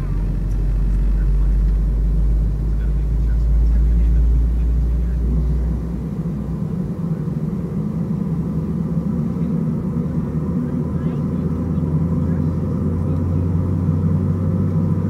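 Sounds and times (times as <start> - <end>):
jet engines idling hum: 0.0 - 15.0
low rumble: 0.0 - 15.0.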